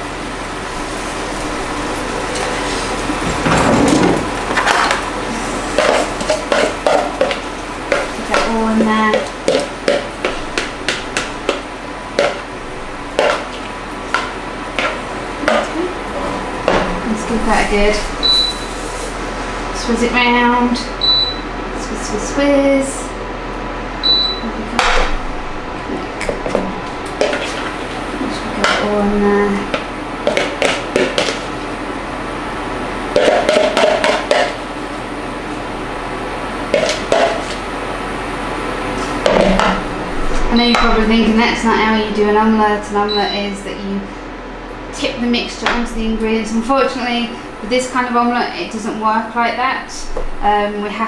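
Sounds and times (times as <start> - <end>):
utensil scraping cookware: 26.5 - 27.9.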